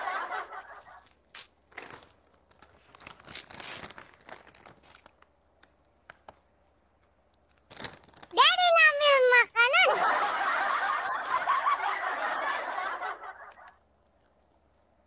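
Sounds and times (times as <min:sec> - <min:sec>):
plastic snack packet crinkling: 0:01.4 - 0:08.8, 0:10.5 - 0:11.6.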